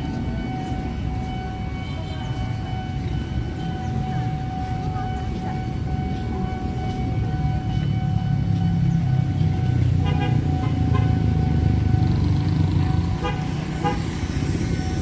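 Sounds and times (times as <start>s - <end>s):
steady high tone: 0.0s - 15.0s
vehicle engines running: 0.0s - 15.0s
car horn toots: 10.0s - 11.3s, 13.2s - 14.2s.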